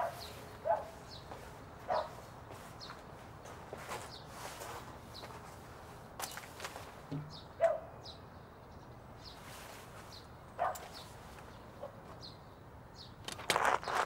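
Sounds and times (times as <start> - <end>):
small birds chirping: 0.0 - 14.0.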